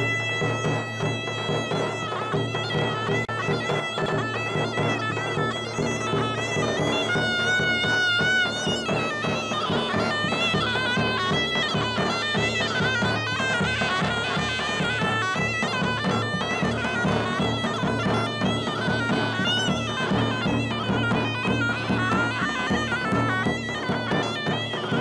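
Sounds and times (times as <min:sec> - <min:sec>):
shrill shawm playing folk tune: 0:00.0 - 0:25.0.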